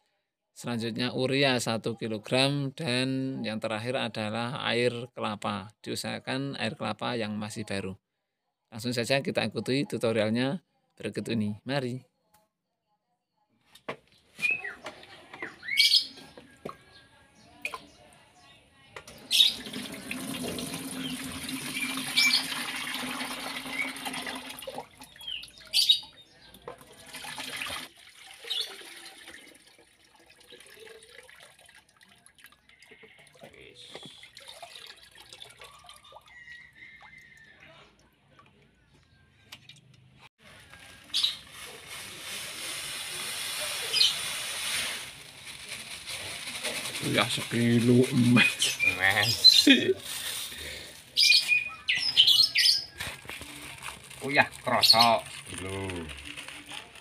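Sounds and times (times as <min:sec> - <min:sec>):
water scooping: 0:19.2 - 0:25.8, 0:26.5 - 0:37.4
plastic bag crinkling: 0:40.4 - 0:51.7, 0:52.9 - 0:57.0.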